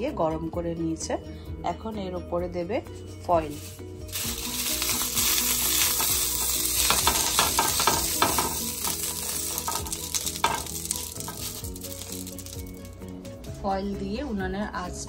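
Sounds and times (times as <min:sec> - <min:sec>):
aluminium foil crinkling: 0:03.4 - 0:13.2.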